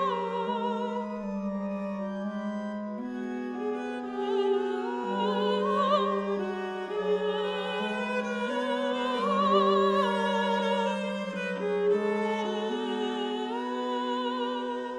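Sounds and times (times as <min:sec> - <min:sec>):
soprano singing with vibrato: 0:04.2 - 0:11.0.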